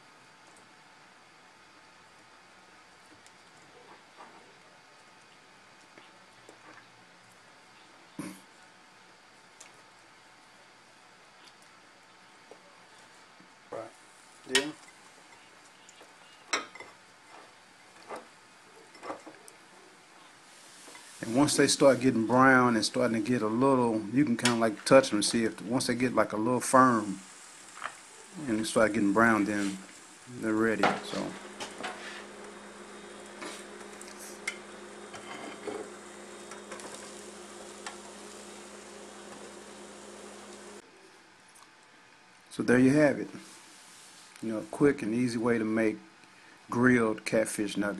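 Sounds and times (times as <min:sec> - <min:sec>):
faint steady hiss: 0:00.0 - 0:47.9
food sizzling in a grill: 0:13.9 - 0:15.5, 0:20.3 - 0:40.8, 0:42.9 - 0:44.8
low steady hum: 0:28.3 - 0:40.8.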